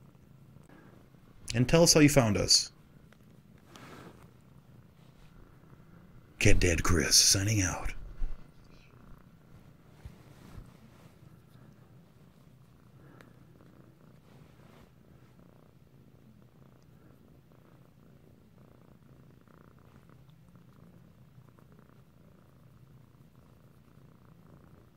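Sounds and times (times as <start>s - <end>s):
cat purring: 0.0s - 24.9s
soft rustles: 2.9s - 6.4s, 8.0s - 15.6s.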